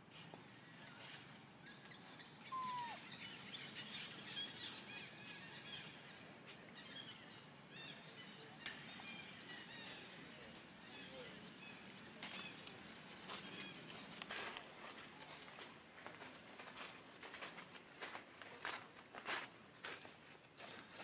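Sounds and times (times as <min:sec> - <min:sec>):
small birds chirping: 0:00.5 - 0:15.4
whistled falling note: 0:02.5 - 0:03.0.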